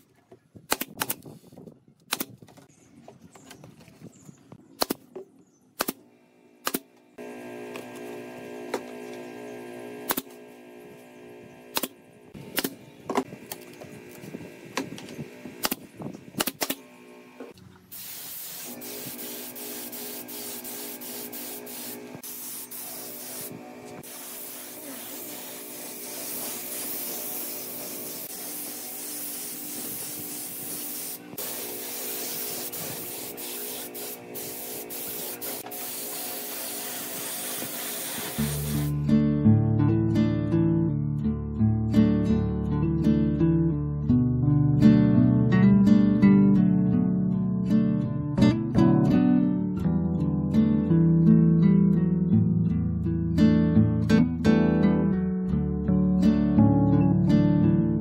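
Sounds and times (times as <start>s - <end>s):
pneumatic nail gun shots: 0.7s - 1.4s, 2.1s - 2.4s, 4.8s - 5.1s, 5.8s - 6.0s, 6.6s - 7.0s, 9.9s - 10.5s, 11.6s - 17.0s, 18.0s - 38.9s
compressed air hissing from hose: 17.9s - 38.9s.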